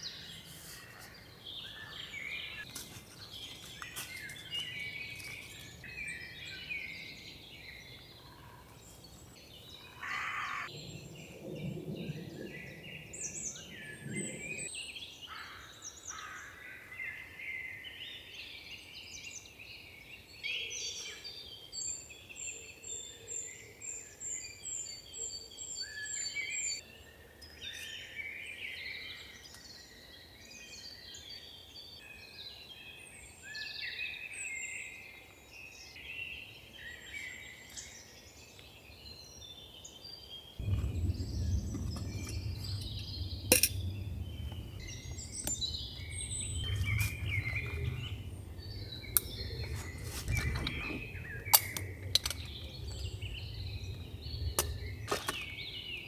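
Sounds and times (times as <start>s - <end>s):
songbirds singing: 0.0s - 56.0s
low rumbling noise: 10.7s - 14.7s, 40.6s - 56.0s.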